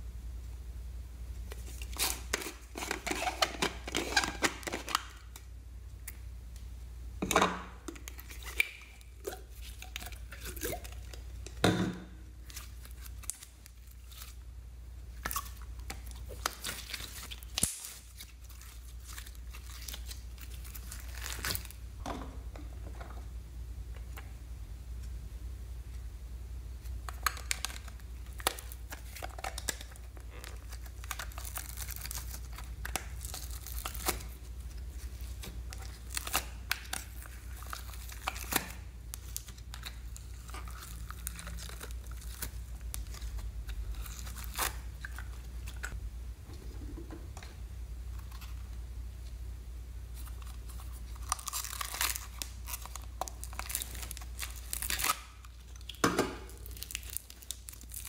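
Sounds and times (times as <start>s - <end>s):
steady low hum: 0.0s - 2.8s, 27.9s - 51.5s
slime tearing and crinkling: 1.5s - 5.5s, 8.0s - 11.6s, 12.3s - 14.5s, 15.1s - 21.8s, 27.0s - 46.0s, 50.1s - 58.0s.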